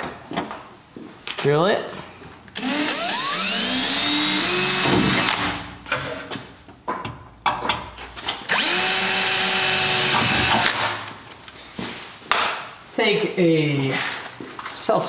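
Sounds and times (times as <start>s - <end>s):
cordless drill drilling: 2.5s - 5.6s, 8.4s - 11.0s.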